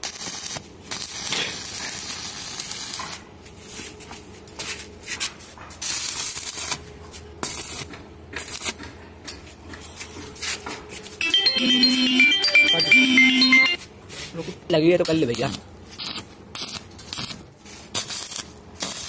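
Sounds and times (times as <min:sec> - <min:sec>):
welding arc crackling and hissing: 0:00.0 - 0:05.1, 0:05.7 - 0:08.8, 0:14.8 - 0:19.0.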